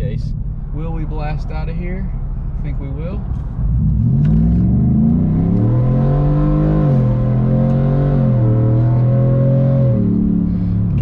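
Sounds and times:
engine accelerating hard: 3.7 - 11.0.

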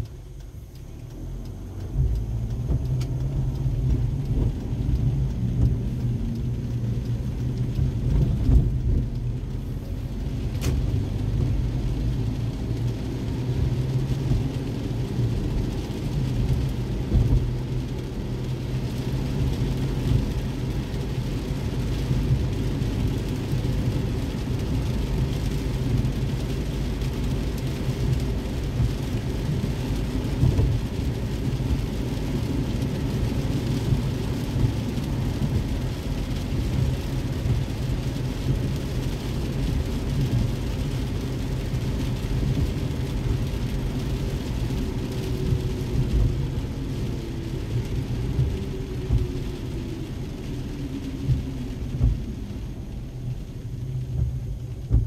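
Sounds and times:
click: 0.0 - 3.6
engine and tyres rumbling: 0.0 - 55.0
hiss of rain and road spray: 0.0 - 55.0.

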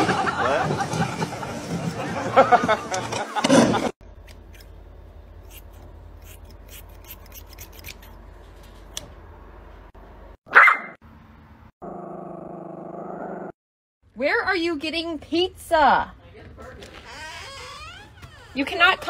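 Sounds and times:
scissors snipping fur: 5.4 - 8.2
dog bark: 10.5 - 11.0.

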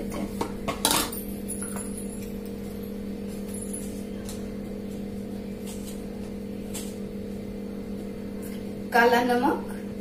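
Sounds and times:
low background hum: 0.0 - 10.0.

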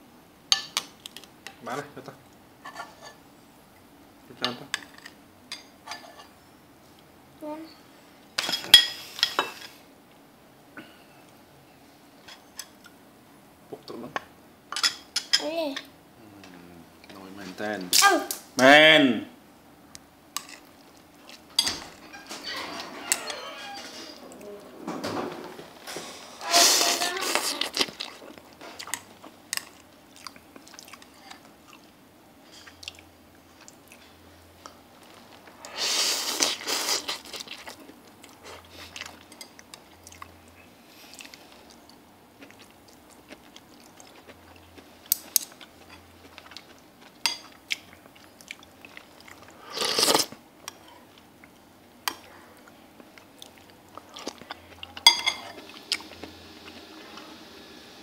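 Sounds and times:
chewing: 27.2 - 32.0, 36.3 - 56.9.

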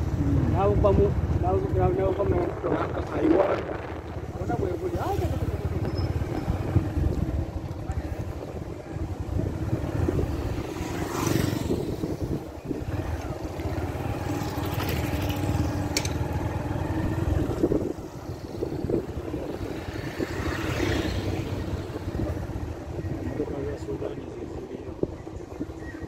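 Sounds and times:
road and wind rumble: 0.0 - 26.0
motorcycle engine running: 3.6 - 20.2.

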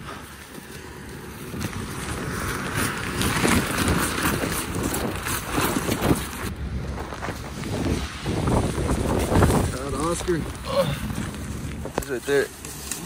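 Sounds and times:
rain poncho and plastic bag rustling: 0.0 - 13.0
wind noise: 0.0 - 13.0.

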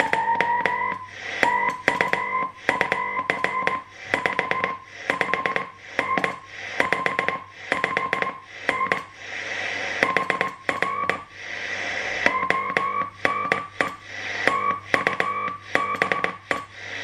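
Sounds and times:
morse code beeps: 0.0 - 9.0
receiver hiss: 0.0 - 17.0.

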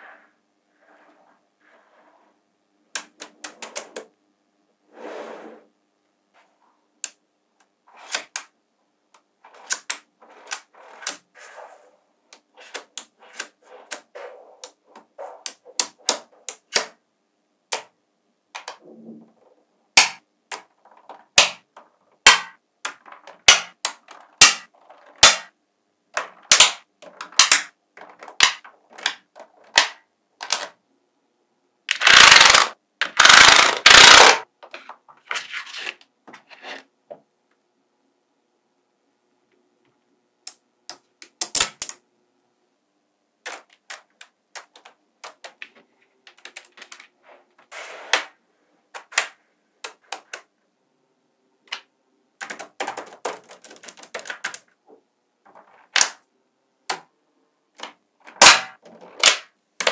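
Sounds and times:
magnetic balls clicking together: 31.9 - 34.4.

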